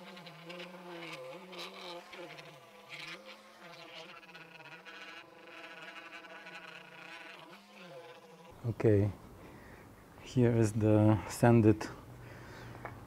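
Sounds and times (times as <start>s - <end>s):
orbital sander buzzing on wood: 0.0s - 8.6s.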